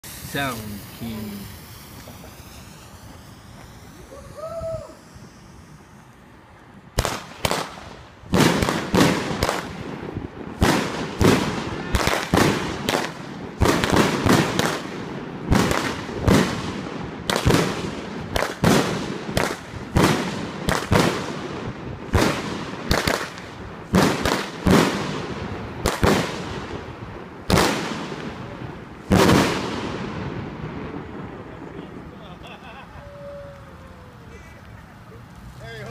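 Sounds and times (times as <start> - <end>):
firework cake firing sharp bangs: 7.0 - 31.8.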